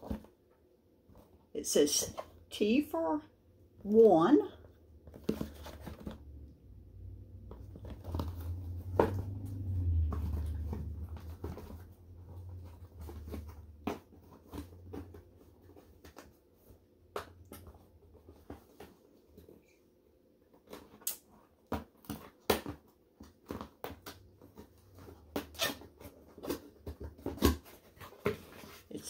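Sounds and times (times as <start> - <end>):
cardboard taps and scrapes: 5.0 - 6.2.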